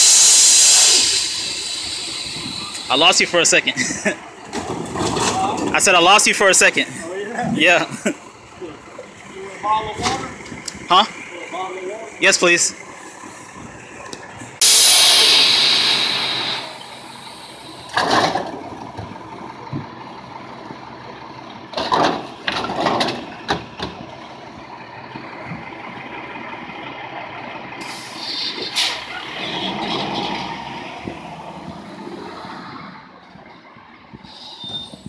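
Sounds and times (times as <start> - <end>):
air brakes hissing: 0.0 - 4.0, 14.6 - 18.2, 27.8 - 29.7, 34.1 - 35.0
diesel engine idling: 0.0 - 35.0
recyclables clattering into truck: 4.4 - 6.1, 17.9 - 19.9, 21.7 - 24.1.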